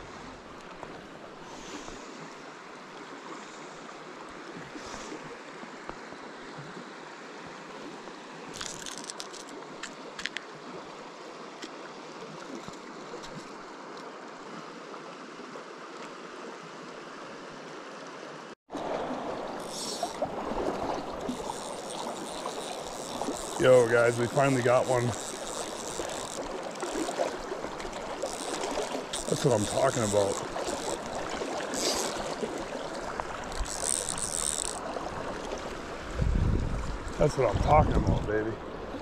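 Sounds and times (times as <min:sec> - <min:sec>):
water running over rocks: 0:18.7 - 0:39.0.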